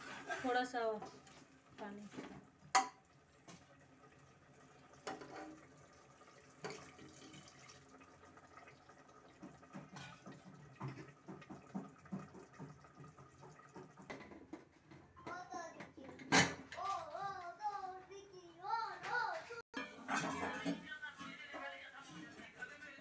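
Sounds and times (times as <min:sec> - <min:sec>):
ladle stirring liquid: 0:00.0 - 0:14.7, 0:19.8 - 0:23.0.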